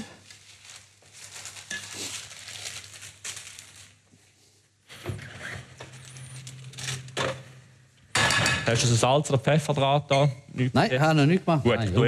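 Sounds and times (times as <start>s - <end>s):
low steady hum: 5.1s - 12.0s.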